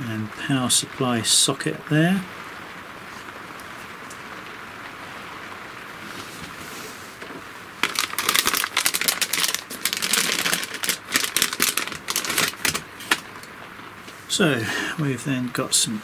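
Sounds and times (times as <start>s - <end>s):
steady low hiss: 0.0s - 16.0s
plastic bag crinkling: 7.8s - 13.5s.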